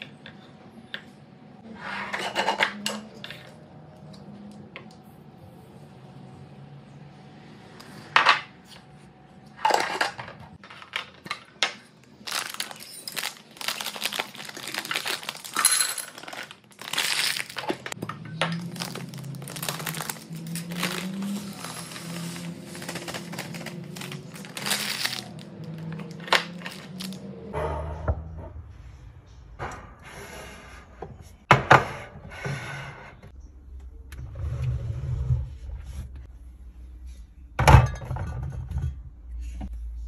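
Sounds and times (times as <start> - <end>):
packaging crinkling and rustling: 11.8 - 27.2
glass jars clinking on stone: 12.3 - 22.1.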